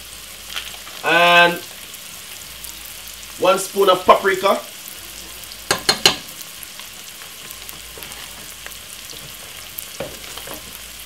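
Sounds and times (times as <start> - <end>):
onion frying in oil: 0.0 - 11.0
metal spoon knocking on pot: 5.7 - 6.3.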